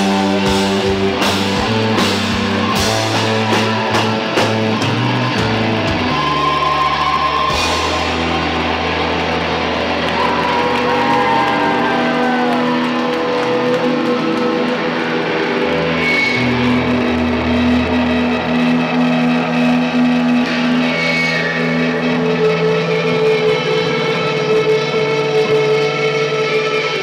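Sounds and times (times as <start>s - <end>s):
droning electric guitars and bass: 0.0s - 27.0s.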